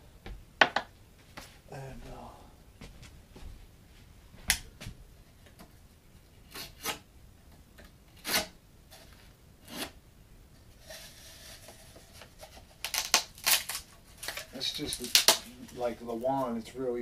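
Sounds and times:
knife scraping wood strip: 0:06.5 - 0:07.0, 0:08.2 - 0:10.0.

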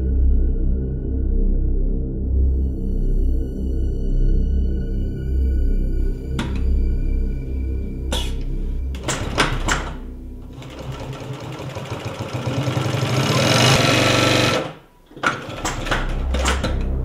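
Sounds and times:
ambient music: 0:00.0 - 0:11.8, 0:13.4 - 0:17.0
sewing machine stitching leather: 0:09.0 - 0:17.0.

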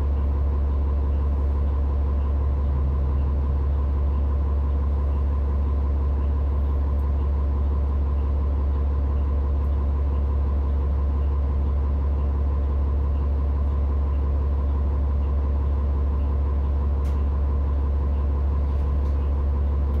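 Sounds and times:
vehicle engine idling: 0:00.0 - 0:20.0.

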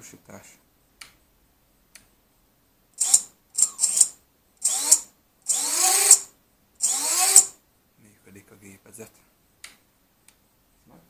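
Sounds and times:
drone motors whining: 0:03.0 - 0:07.5.

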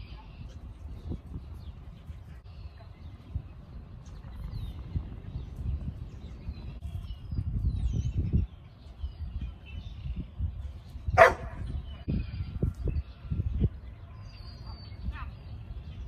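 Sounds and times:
dog barking: 0:11.2 - 0:11.6.

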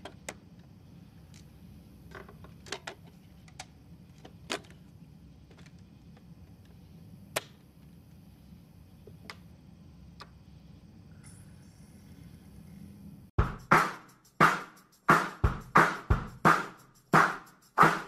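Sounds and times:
faint low hum: 0:00.0 - 0:13.3.

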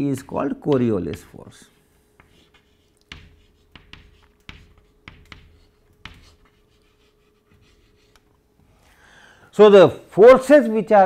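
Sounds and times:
faint steady hum: 0:00.0 - 0:11.0
chalk tapping and scratching: 0:00.1 - 0:08.3.

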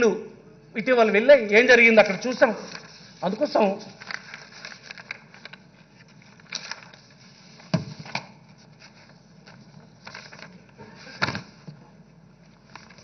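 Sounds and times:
paper rustling: 0:02.5 - 0:11.8, 0:12.4 - 0:13.0.

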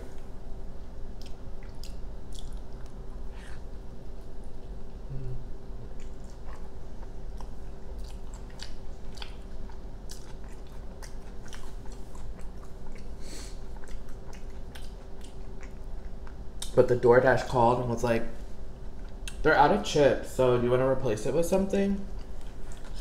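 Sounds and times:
low hum: 0:00.0 - 0:19.4
person chewing food: 0:01.1 - 0:03.7, 0:05.8 - 0:16.7.

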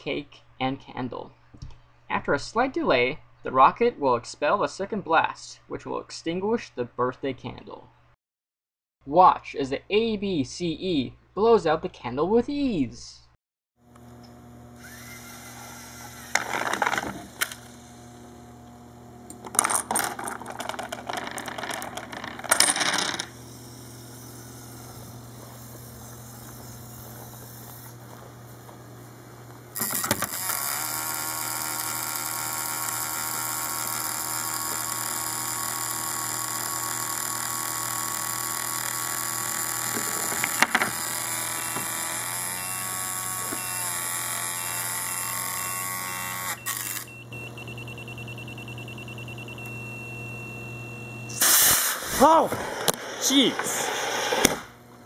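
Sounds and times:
mechanical hum with whine: 0:13.8 - 0:55.0
metal balls rattling on ramp: 0:16.4 - 0:17.2, 0:19.4 - 0:23.4, 0:39.8 - 0:41.1.

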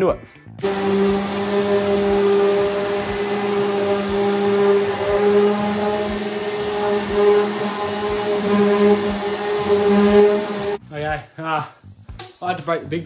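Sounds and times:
orbital sander running: 0:00.6 - 0:10.8.

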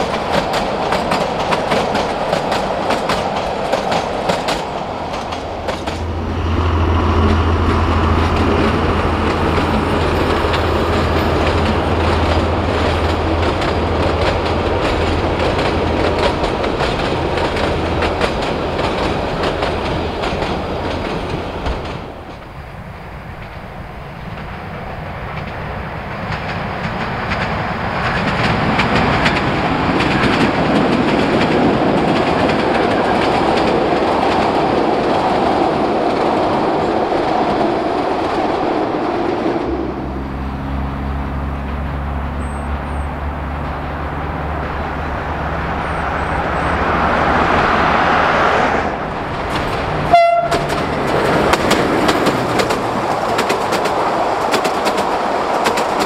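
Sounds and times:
train wheels clattering on rails: 0:00.0 - 0:48.4, 0:49.0 - 0:56.0
diesel locomotive engine drone: 0:00.0 - 0:56.0.

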